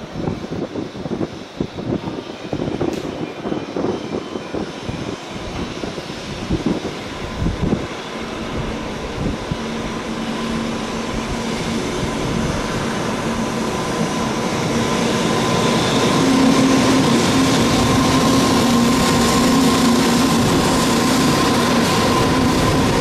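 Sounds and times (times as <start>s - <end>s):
freight train passing: 0.0s - 23.0s
locomotive hum: 0.0s - 23.0s.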